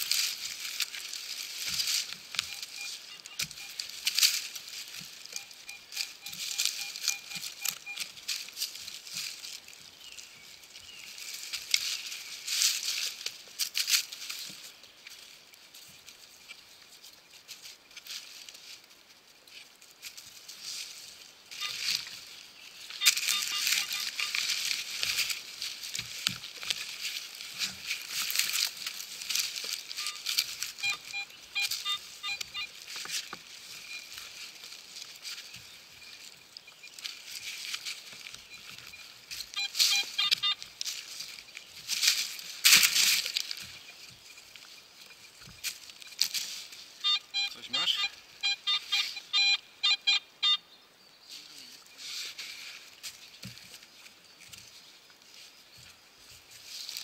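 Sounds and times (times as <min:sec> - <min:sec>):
shovel digging soil and leaves: 0:00.0 - 0:16.6, 0:17.6 - 0:49.6, 0:51.4 - 0:57.0
metal detector rapid beeps: 0:00.1 - 0:13.2, 0:21.5 - 0:50.6.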